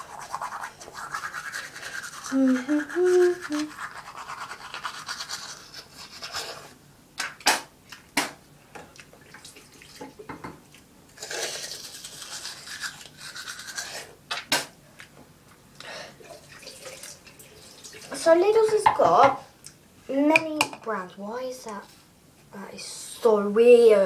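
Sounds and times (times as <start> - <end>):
toothbrush scrubbing teeth: 0.0 - 6.7, 11.2 - 14.2.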